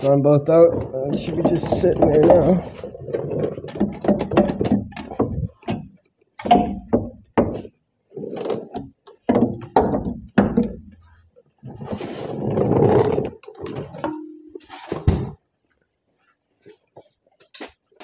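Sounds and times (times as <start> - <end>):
metal tools clunking and rattling: 0.5 - 7.7, 13.0 - 15.4.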